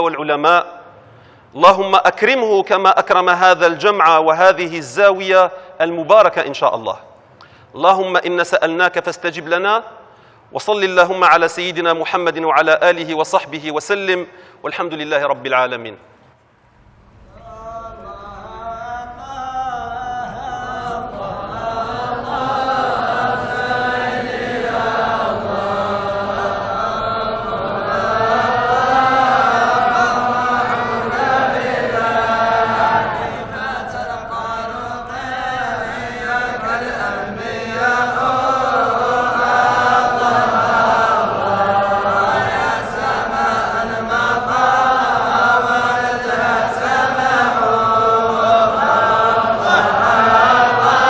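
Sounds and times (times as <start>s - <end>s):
men chanting in unison: 17.4s - 51.0s.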